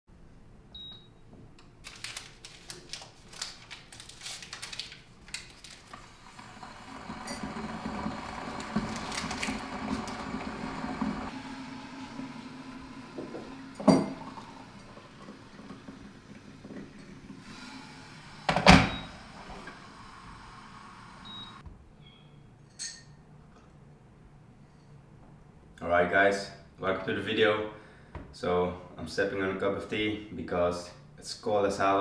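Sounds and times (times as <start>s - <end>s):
electric kettle heating water: 5.9s - 21.6s
hot water pouring into glass: 5.9s - 21.6s
kettle switching off: 6.0s - 21.6s
glass and tea things clinking: 13.8s - 14.3s.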